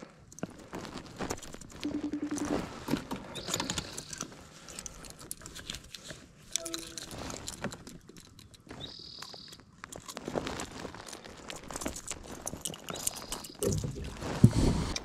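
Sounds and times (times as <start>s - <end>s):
short high tones: 6.6s - 7.1s.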